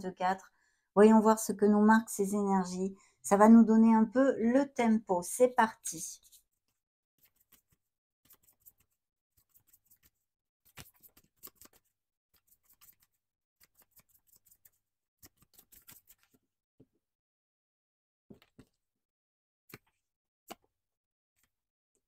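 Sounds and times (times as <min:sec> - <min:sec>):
cards being shuffled: 0:09.6 - 0:11.9, 0:12.6 - 0:16.4.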